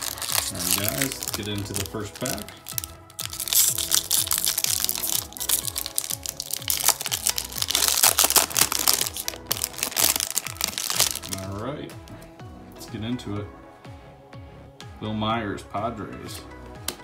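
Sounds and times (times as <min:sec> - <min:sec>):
foil wrapper crinkling and tearing: 0:00.0 - 0:11.6
background music: 0:00.0 - 0:17.0.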